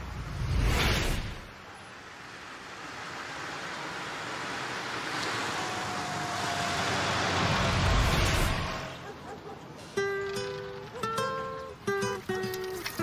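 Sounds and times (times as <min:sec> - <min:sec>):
car approaching: 0:01.6 - 0:11.0.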